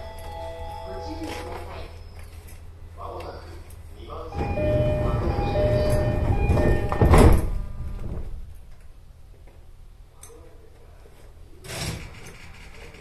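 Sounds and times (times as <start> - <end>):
steady door warning tones: 4.2 - 8.5
train doors shutting thud: 4.4 - 8.5.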